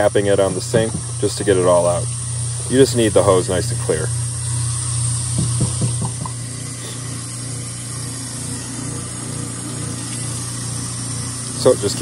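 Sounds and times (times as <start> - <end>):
low hum: 0.0 - 11.6
water running into steel sink: 0.0 - 12.0
light knocks: 5.3 - 6.4.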